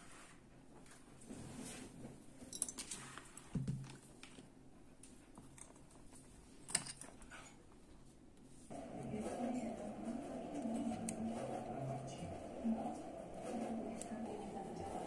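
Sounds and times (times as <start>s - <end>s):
small metal parts clicking: 6.6s - 7.2s.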